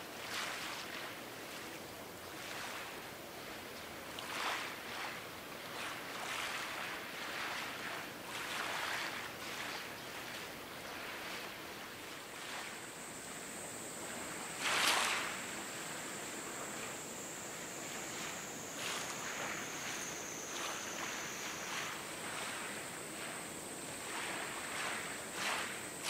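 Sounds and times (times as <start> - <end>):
water lapping against quay: 0.1 - 26.0
faint high whine: 11.5 - 26.0.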